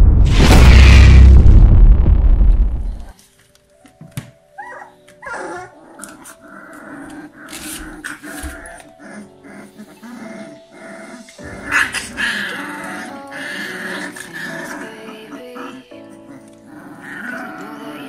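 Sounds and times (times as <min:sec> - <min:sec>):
background music: 0:03.1 - 0:18.0
puppies play-growling: 0:04.6 - 0:18.0.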